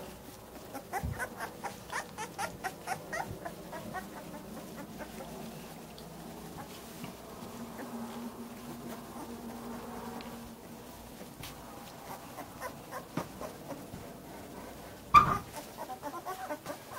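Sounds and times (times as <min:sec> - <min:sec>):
puppies squeaking: 0:00.7 - 0:05.4, 0:12.0 - 0:13.8, 0:15.2 - 0:16.9.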